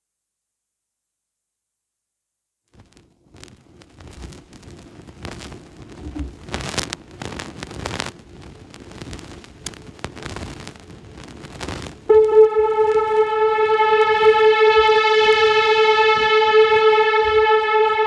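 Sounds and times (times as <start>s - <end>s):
steady electronic tone: 12.1s - 18.0s.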